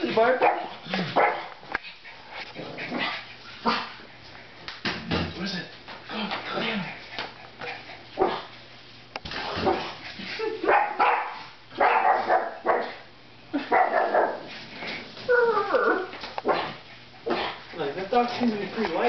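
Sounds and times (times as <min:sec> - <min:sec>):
small dogs yapping: 0:10.6 - 0:13.0, 0:13.6 - 0:14.5, 0:15.3 - 0:17.7
dog yelping: 0:10.7 - 0:13.0, 0:13.7 - 0:14.4, 0:15.3 - 0:16.7.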